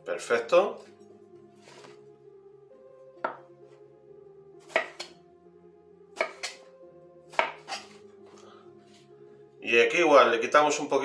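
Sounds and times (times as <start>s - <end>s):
knife chopping on wooden board: 3.2s - 3.5s, 4.6s - 5.2s, 6.2s - 6.7s, 7.3s - 8.0s.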